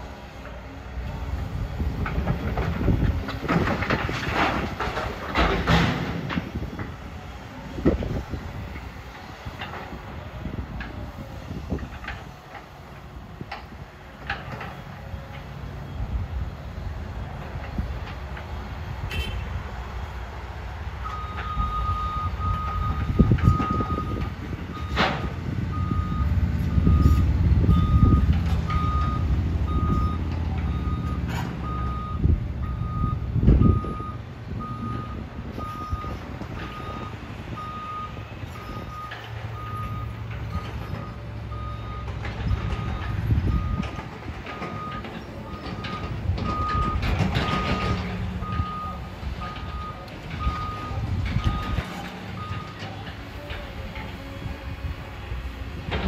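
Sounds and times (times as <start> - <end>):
diesel machinery rumble: 0.0 - 56.0
reversing alarm beeping: 21.0 - 52.9.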